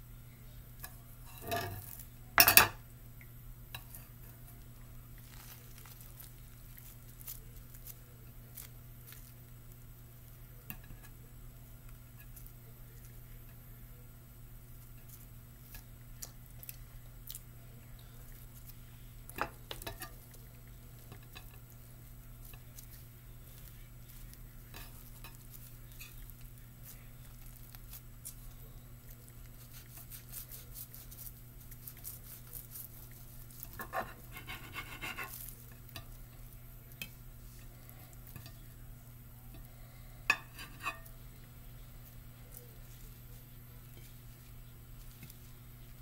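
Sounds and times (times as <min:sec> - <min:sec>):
low steady hum: 0:00.0 - 0:46.0
knife tapping and scraping on plate: 0:00.8 - 0:02.8, 0:33.6 - 0:36.2, 0:40.3 - 0:41.1
crackles: 0:03.0 - 0:46.0.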